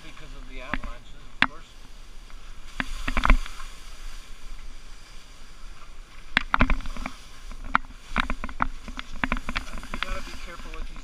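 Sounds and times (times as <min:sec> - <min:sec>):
skis clattering over rough snow: 0:02.7 - 0:11.0
skis swishing through slushy snow: 0:02.8 - 0:06.0, 0:09.4 - 0:11.0.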